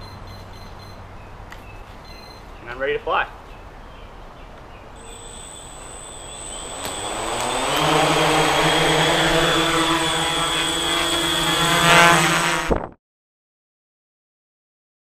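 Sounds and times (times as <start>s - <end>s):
drone motors whining: 5.0s - 12.8s.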